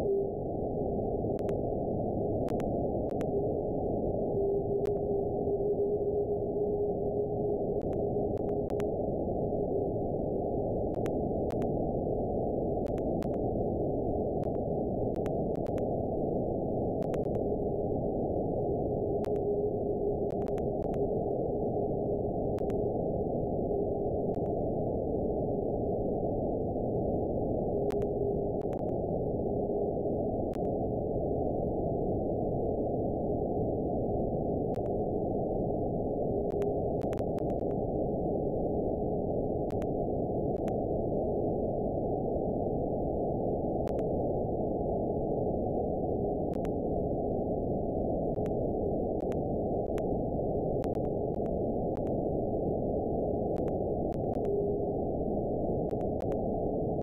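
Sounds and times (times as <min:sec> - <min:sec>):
faint scattered clicks: 0:01.4 - 0:01.6, 0:02.4 - 0:03.3, 0:07.8 - 0:09.0, 0:10.9 - 0:11.8, 0:12.8 - 0:13.4, 0:14.4 - 0:15.9, 0:17.0 - 0:17.5, 0:19.2 - 0:19.5, 0:20.3 - 0:21.1, 0:22.6 - 0:22.8, 0:27.9 - 0:29.0, 0:36.5 - 0:37.8, 0:39.7 - 0:39.9, 0:40.6 - 0:40.8, 0:43.8 - 0:44.1, 0:46.5 - 0:46.8, 0:48.3 - 0:48.6, 0:49.2 - 0:50.1, 0:50.8 - 0:52.2, 0:53.5 - 0:54.6, 0:55.9 - 0:56.4.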